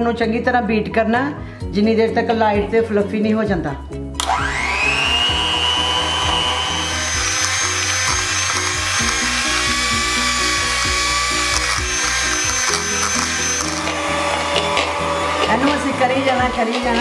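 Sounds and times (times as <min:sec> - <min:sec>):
background music with beat: 0:01.7 - 0:17.0
electric hand mixer whine: 0:04.2 - 0:17.0.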